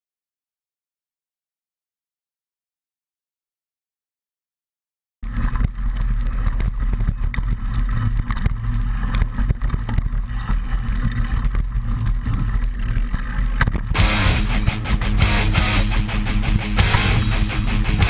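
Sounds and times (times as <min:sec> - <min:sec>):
low rumble of bike riding: 0:05.2 - 0:18.0.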